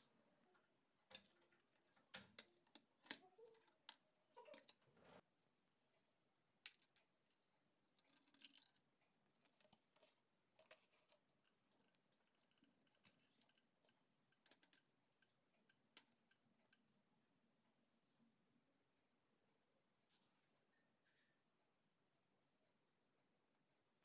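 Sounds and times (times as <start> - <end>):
water pouring into plastic tray: 8.0 - 8.8.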